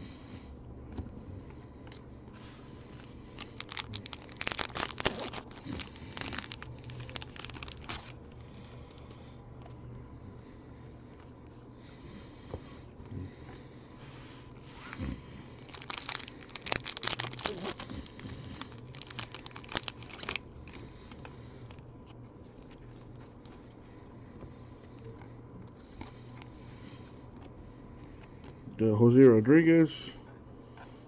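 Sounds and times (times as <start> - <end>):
cards rustling: 1.8 - 9.8, 14.4 - 25.0
wrapper tearing and crinkling: 2.9 - 8.7, 15.6 - 21.2.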